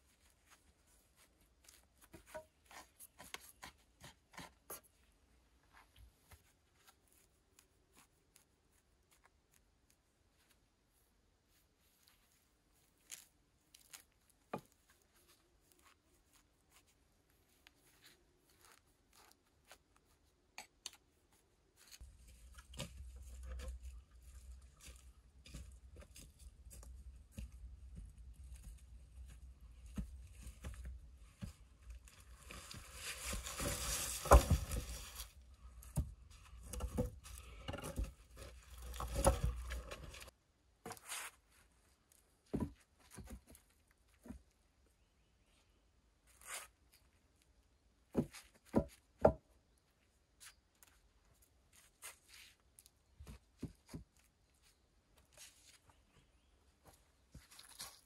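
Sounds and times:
dry leaves and twigs crunching: 0:21.8 - 0:40.3, 0:56.8 - 0:58.0.

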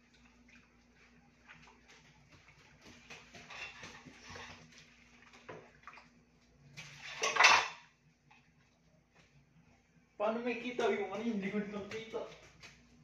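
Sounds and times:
water splashing in sink: 0:00.0 - 0:07.9
dishes clinking: 0:07.0 - 0:07.9.

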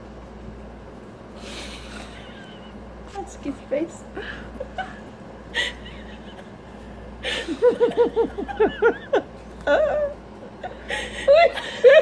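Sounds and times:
person laughing: 0:01.5 - 0:02.8, 0:04.2 - 0:06.6, 0:07.2 - 0:12.0.

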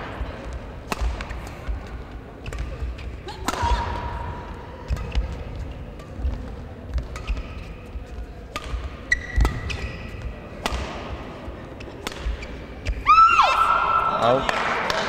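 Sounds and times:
racket hitting shuttlecock: 0:00.5 - 0:13.0
shoe squeak: 0:09.1 - 0:10.2.

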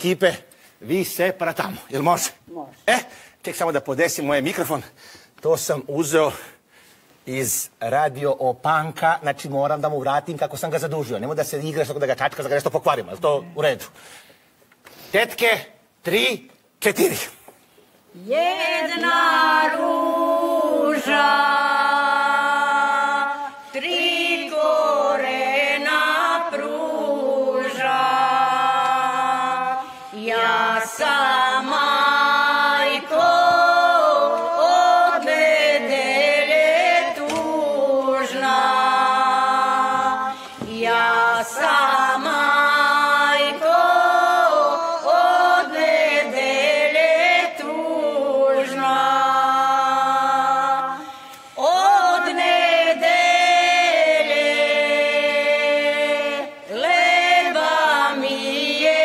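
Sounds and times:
women singing a cappella: 0:18.0 - 0:59.0.

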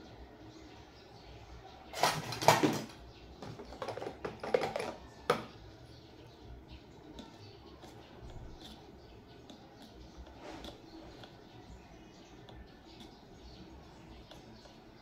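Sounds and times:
clattering and knocking: 0:02.0 - 0:05.5.

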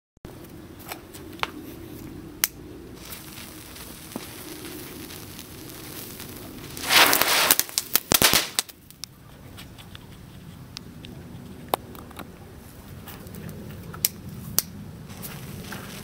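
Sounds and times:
firework crackling pops: 0:02.4 - 0:09.1, 0:14.0 - 0:16.0
firework hissing burst: 0:02.9 - 0:08.8
firework sparks spraying: 0:03.0 - 0:09.1, 0:15.1 - 0:16.0.

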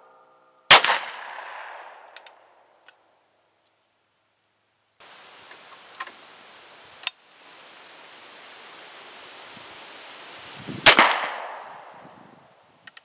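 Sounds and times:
outdoor air noise: 0:00.0 - 0:13.0
shotgun shot: 0:00.7 - 0:02.1, 0:10.8 - 0:11.9.

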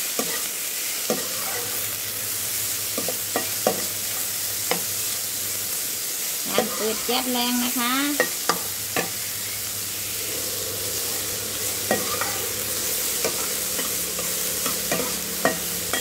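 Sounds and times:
meat sizzling in frying pan: 0:00.0 - 0:16.0
metal spatula scraping pan: 0:10.1 - 0:16.0.

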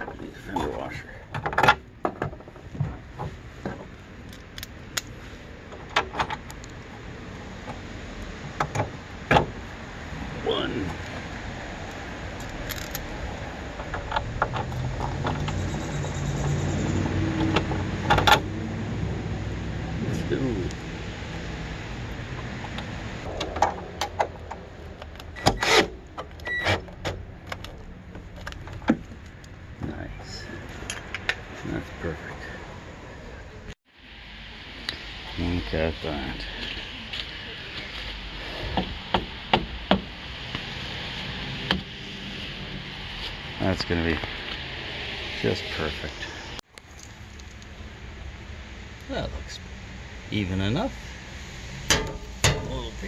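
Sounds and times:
metal clicks and knocks: 0:01.3 - 0:05.1, 0:13.7 - 0:15.7, 0:26.0 - 0:29.5, 0:51.9 - 0:52.9.

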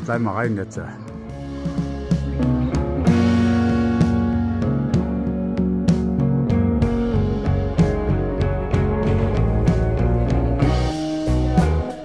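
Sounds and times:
instrumental guitar music: 0:00.0 - 0:12.0.

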